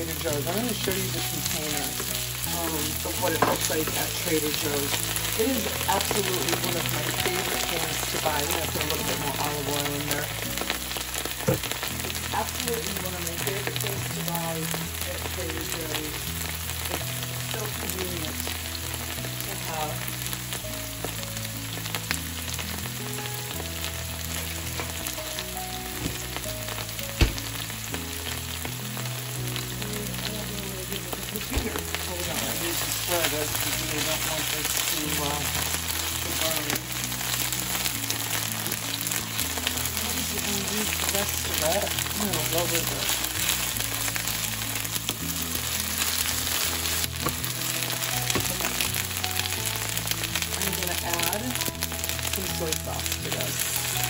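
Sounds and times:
onions frying in oil: 0.0s - 54.0s
small pops of frying oil: 10.6s - 12.3s, 25.9s - 28.7s, 46.2s - 50.5s.

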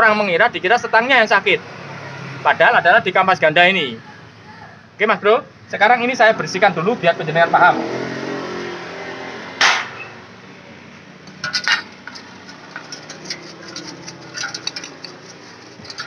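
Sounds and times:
metal clinking against steel basin: 11.3s - 16.0s
paintbrush scrubbing metal: 11.3s - 16.0s.

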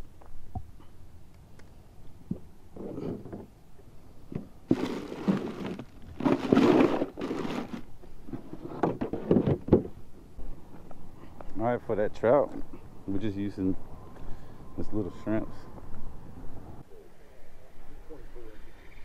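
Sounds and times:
rustling in foam cooler: 4.4s - 9.6s.

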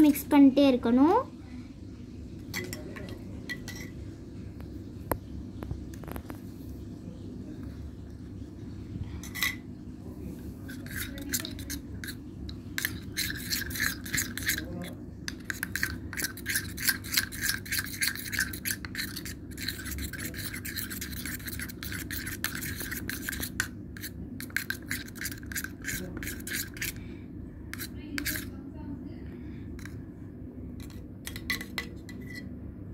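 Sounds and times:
metal spoon scraping steel tumbler: 2.5s - 4.0s, 9.2s - 9.6s, 10.6s - 27.0s, 27.7s - 28.6s, 30.8s - 32.5s.

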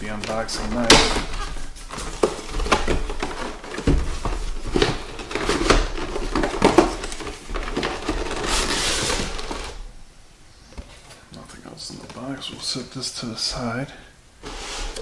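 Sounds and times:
plastic tray rustling and scraping: 0.0s - 9.8s, 14.4s - 15.0s.

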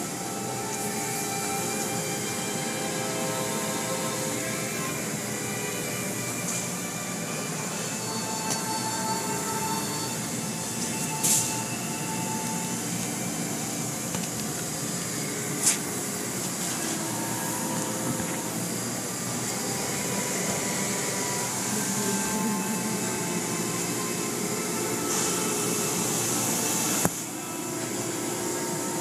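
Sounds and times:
car wash machinery hiss and hum: 0.0s - 29.0s.

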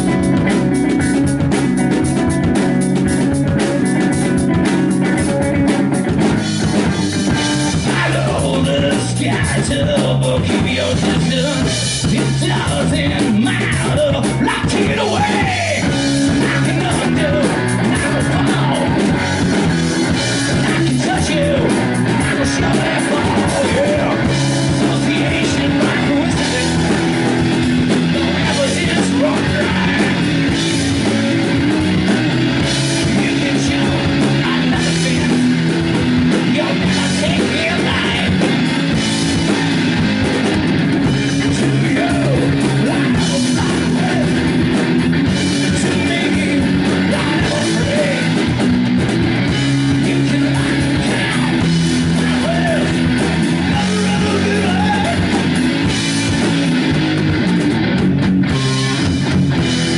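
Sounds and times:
bass guitar: 0.0s - 59.9s
drum kit: 0.0s - 59.9s
electric guitar: 0.0s - 59.9s
man singing: 7.3s - 19.7s, 20.3s - 38.7s, 41.2s - 44.5s, 45.4s - 48.5s, 49.7s - 55.6s.

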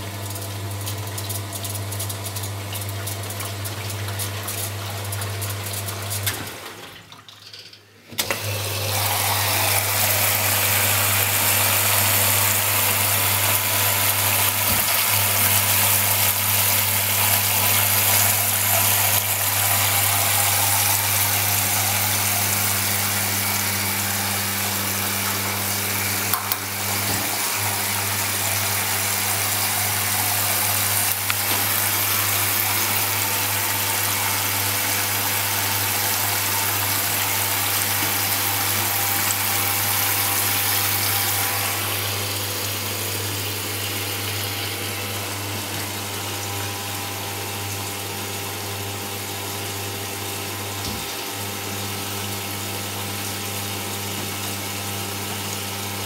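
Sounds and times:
washer-dryer humming and hissing: 0.0s - 56.0s
washer-dryer clicks: 26.2s - 27.6s.

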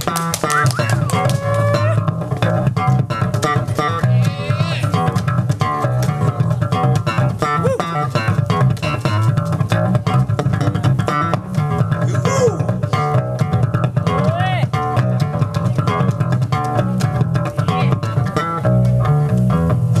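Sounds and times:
electric bass guitar: 0.0s - 20.0s
acoustic guitar plucked notes: 0.2s - 20.0s.

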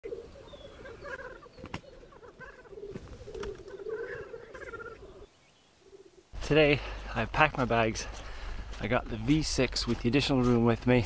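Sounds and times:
grouse bubbling cooing song: 0.0s - 6.3s.

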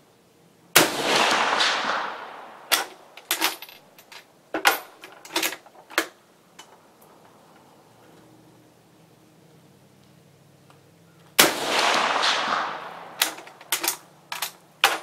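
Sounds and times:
rifle shot with echo: 0.8s - 3.2s, 11.4s - 14.1s
rifle bolt metallic clicks: 12.0s - 15.0s.

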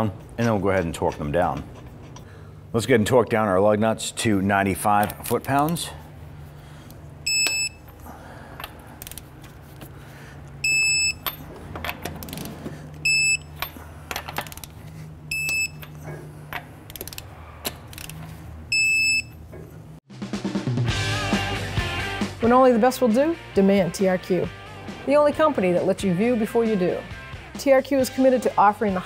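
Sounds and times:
torque wrench electronic beep: 7.3s - 7.9s, 10.6s - 11.2s, 13.0s - 13.6s, 15.3s - 15.8s, 18.7s - 19.4s
ratchet clicks: 17.9s - 18.2s.

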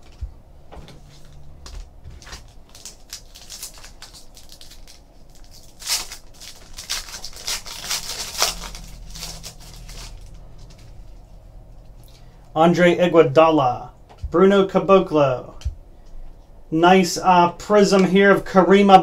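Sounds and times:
cards rustling: 1.0s - 11.3s
foil wrapper crinkling and tearing: 2.2s - 10.9s.

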